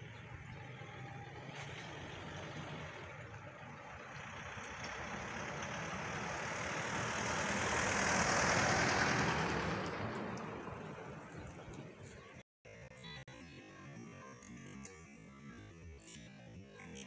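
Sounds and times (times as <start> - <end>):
road vehicle passing by: 0.0 - 12.4.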